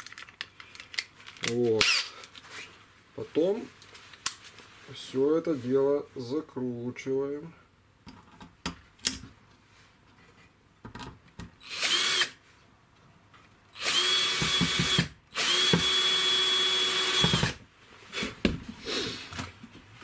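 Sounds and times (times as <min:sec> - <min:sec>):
power drill driving screws: 0:11.6 - 0:12.4, 0:13.8 - 0:17.6.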